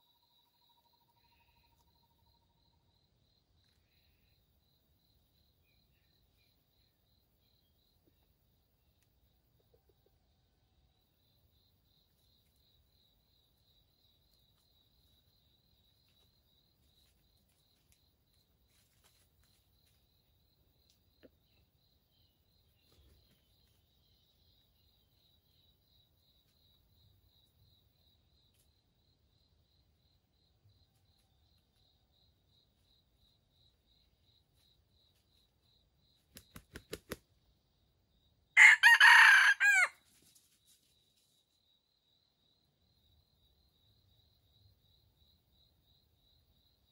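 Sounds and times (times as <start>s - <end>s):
faint insect trill: 0.0s - 46.9s
rooster wings flapping: 36.2s - 37.2s
rooster crowing: 38.6s - 40.0s.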